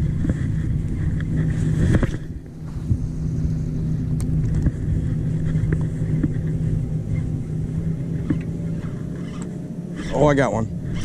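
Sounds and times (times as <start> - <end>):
boat motor running: 0.0 - 11.0.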